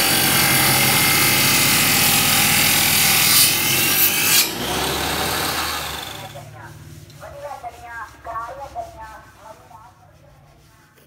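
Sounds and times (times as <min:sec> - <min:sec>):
saw running freely with hum: 0:00.0 - 0:06.5
table saw cutting wood: 0:00.0 - 0:06.5.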